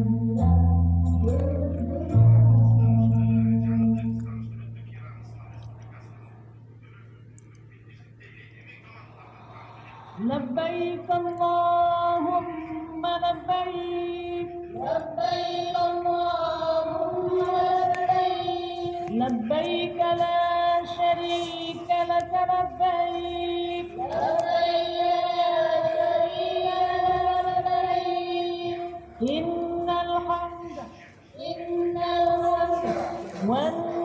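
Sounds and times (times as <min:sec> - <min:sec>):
person singing chant-like phrases: 0:09.0 - 0:34.0.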